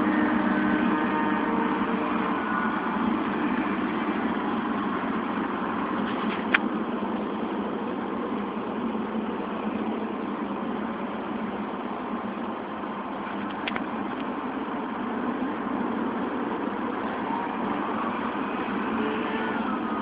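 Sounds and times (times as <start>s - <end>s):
model plane motor droning: 17.2s - 20.0s.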